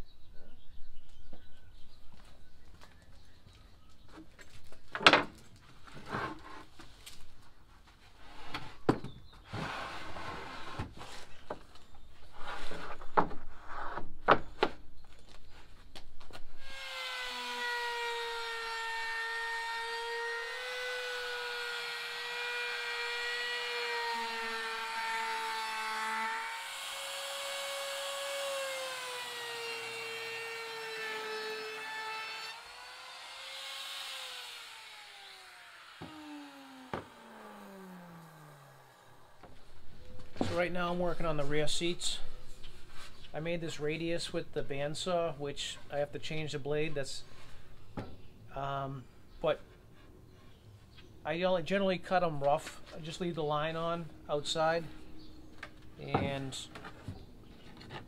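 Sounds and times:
router whining: 16.6s - 39.6s.

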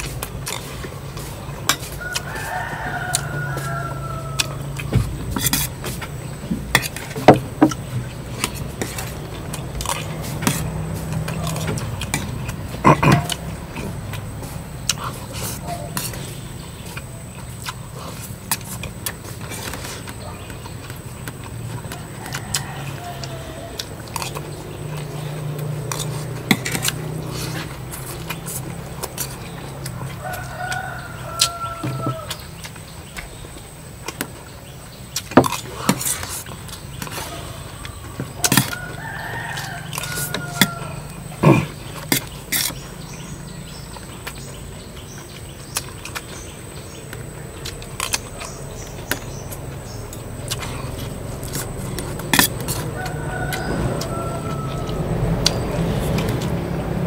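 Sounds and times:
rooster crowing: 1.8s - 5.0s, 21.6s - 27.7s, 29.3s - 32.6s, 37.0s - 42.0s, 50.6s - 57.0s.

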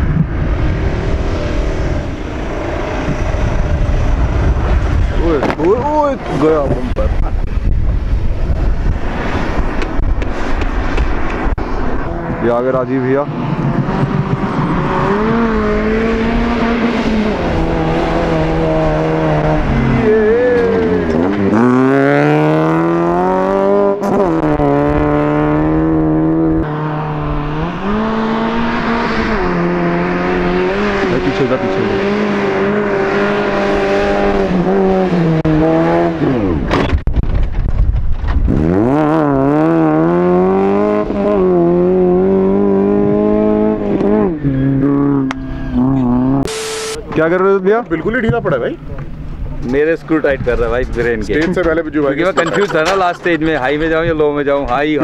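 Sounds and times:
suv engine revving: 13.4s - 36.8s, 38.4s - 47.0s.

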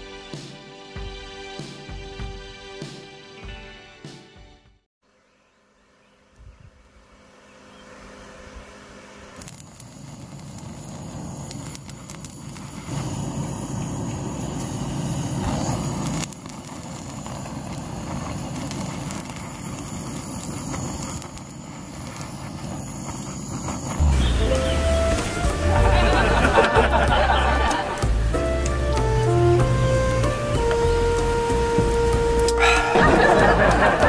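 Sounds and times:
low rushing fire: 8.0s - 34.0s
fire crackles and pops: 9.3s - 34.0s.

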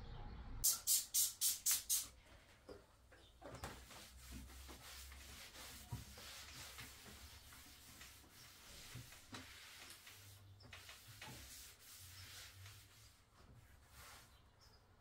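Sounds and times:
trigger spray bottle squirts: 0.6s - 2.1s
cloth rubbing on table: 3.6s - 14.4s.

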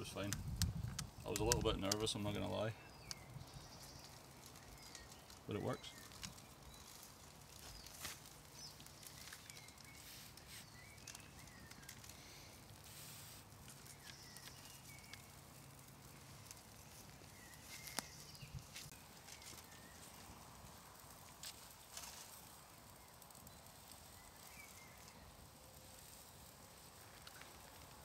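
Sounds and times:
small clicks: 0.2s - 2.1s
bird chirps: 2.5s - 7.0s, 7.6s - 12.3s, 13.7s - 15.7s, 17.2s - 20.2s.

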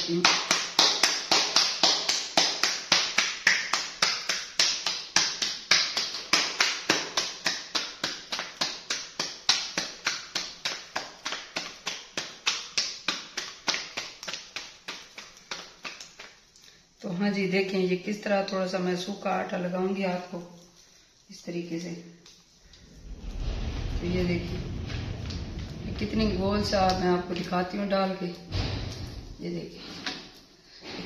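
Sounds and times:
hands slapping dough: 0.0s - 16.8s.

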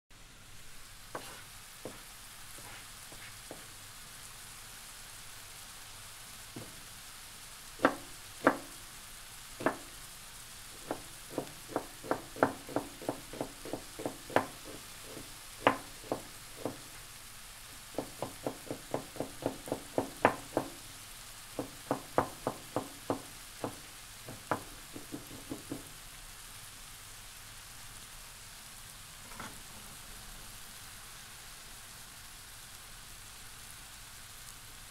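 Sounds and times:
onions sizzling in a pan: 0.2s - 34.9s
knife chopping: 1.2s - 2.0s, 2.6s - 3.7s, 6.6s - 6.8s, 7.8s - 8.8s, 9.6s - 9.9s, 10.8s - 16.9s, 18.0s - 20.8s, 21.6s - 25.8s.

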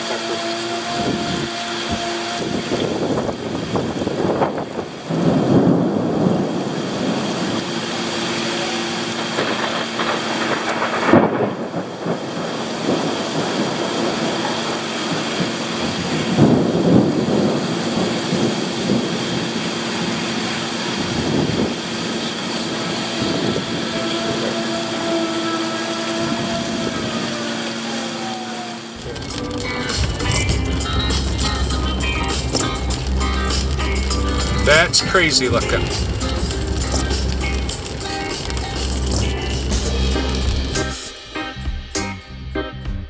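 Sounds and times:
steady rain: 0.0s - 41.4s
thunder rumbling: 0.0s - 42.0s
sharp thunder crack: 2.8s - 7.9s, 9.2s - 19.7s, 29.0s - 42.0s.

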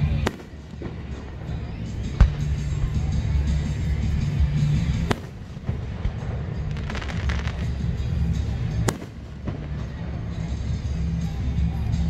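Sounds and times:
firework bangs: 0.0s - 3.0s, 4.7s - 10.6s
firework crackling: 0.0s - 10.8s
music: 0.0s - 12.0s.

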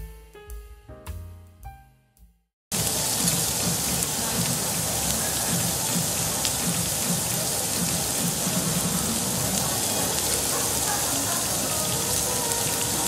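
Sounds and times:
pork sizzling on a grill: 2.7s - 13.0s.

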